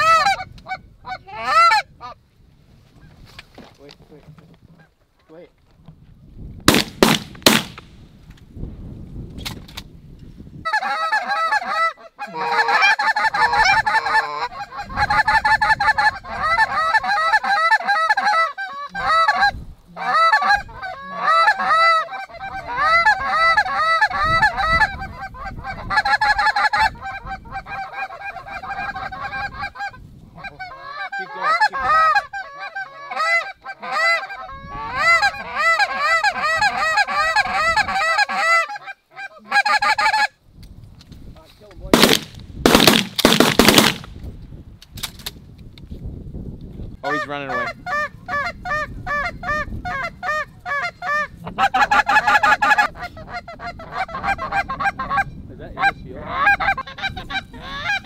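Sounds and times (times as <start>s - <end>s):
geese honking: 0.0s - 2.2s, 10.7s - 40.3s, 47.0s - 58.0s.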